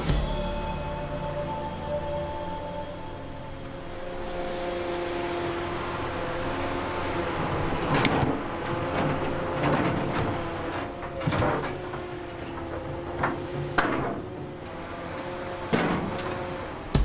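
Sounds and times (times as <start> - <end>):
excavator engine humming: 0.0 - 17.0
steel bucket clunking on boulders: 7.9 - 15.1.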